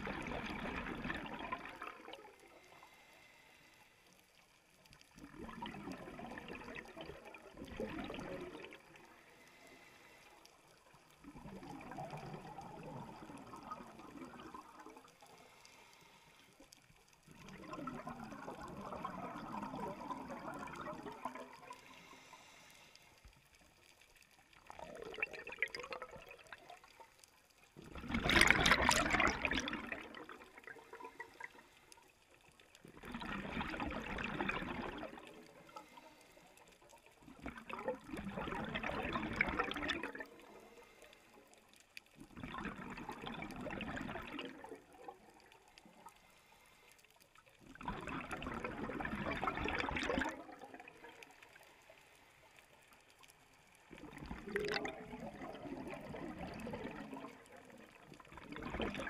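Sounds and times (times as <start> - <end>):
diver exhaling bubbles underwater: 0.0 - 2.5, 5.2 - 9.0, 11.2 - 15.1, 17.3 - 22.1, 24.8 - 26.8, 27.8 - 31.6, 32.9 - 35.8, 37.3 - 40.5, 42.3 - 45.6, 47.7 - 51.3, 53.9 - 59.0
quiet inhalations through regulator: 0.0 - 59.0.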